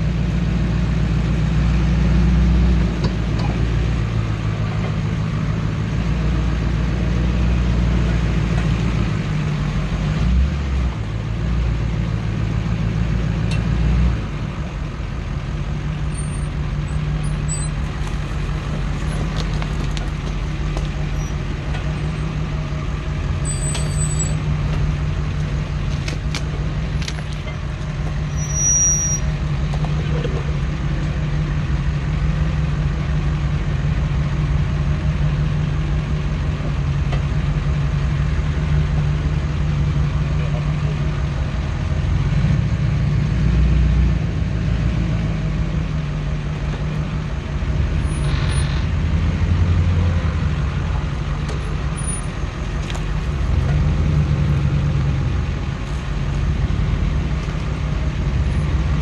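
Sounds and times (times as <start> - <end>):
diesel truck engine droning: 0.0 - 59.0.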